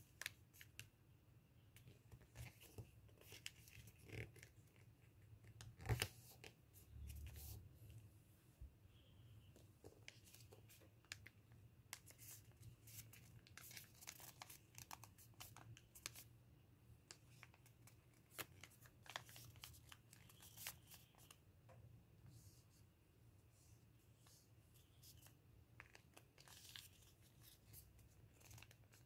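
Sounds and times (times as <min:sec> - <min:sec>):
paper crinkling and rustling: 0:11.9 - 0:16.2, 0:17.2 - 0:21.4, 0:25.0 - 0:29.0.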